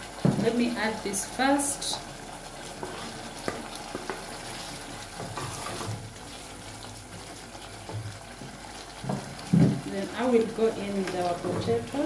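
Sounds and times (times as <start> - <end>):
stirring thick stew: 2.1 - 9.5.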